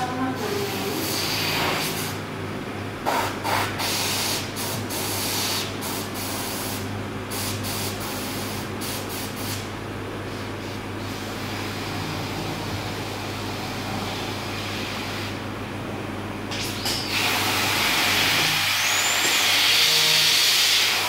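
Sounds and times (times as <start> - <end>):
compressed air hissing bursts: 0.6 - 2.2, 3.0 - 9.7, 16.5 - 21.0.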